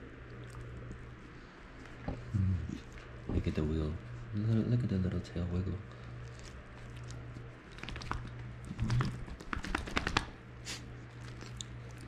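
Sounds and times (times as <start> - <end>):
dog paws clicking and tapping: 6.8 - 10.4.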